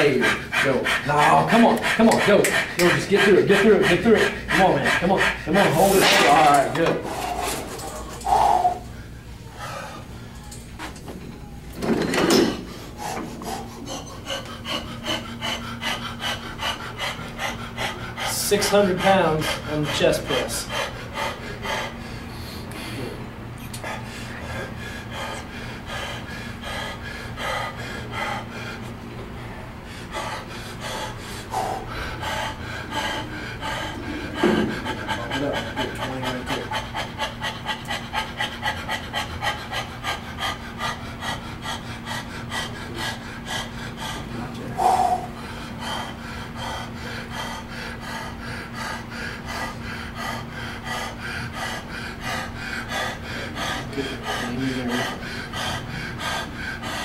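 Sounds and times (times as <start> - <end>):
man panting hard: 0.0 - 10.4, 12.3 - 57.0
steady low hum: 0.0 - 57.0.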